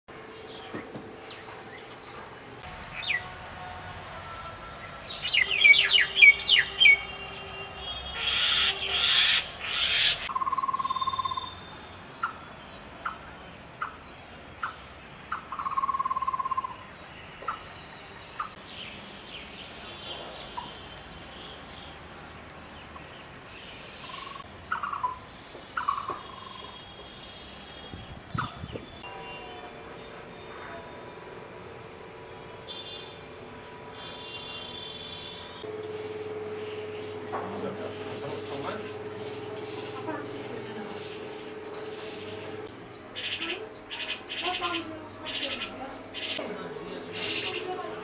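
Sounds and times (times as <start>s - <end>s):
harsh rasping bird calls: 5.0s - 17.7s, 23.9s - 27.0s, 34.0s - 48.0s.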